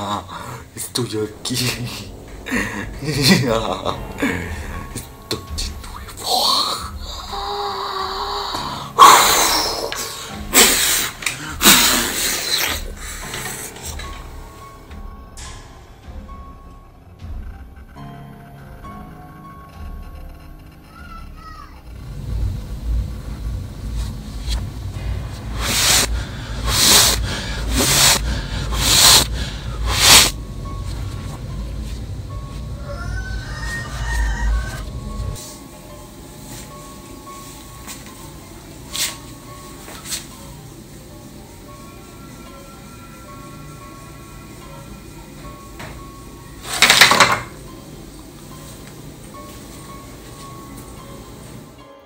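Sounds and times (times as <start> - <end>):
steady low hum: 21.9 - 32.8
loud hissing bursts: 25.0 - 30.4.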